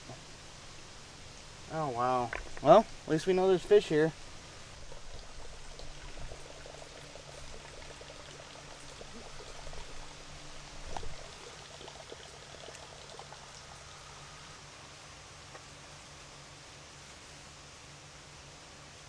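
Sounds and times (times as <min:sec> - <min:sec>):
water trickling into pond: 0:00.0 - 0:16.4
low hum: 0:00.0 - 0:16.8.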